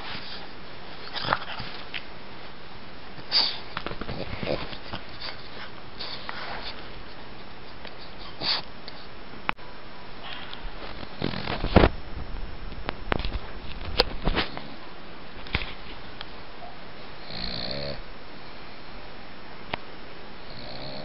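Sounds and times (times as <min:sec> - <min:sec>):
dog sniffing: 0:03.2 - 0:09.1.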